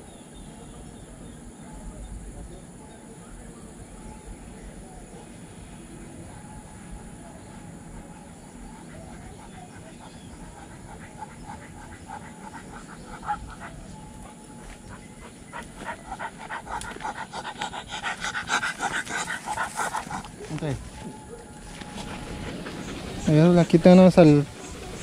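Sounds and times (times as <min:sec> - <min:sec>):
dog panting fast: 0:07.5 - 0:21.0, 0:21.7 - 0:25.0.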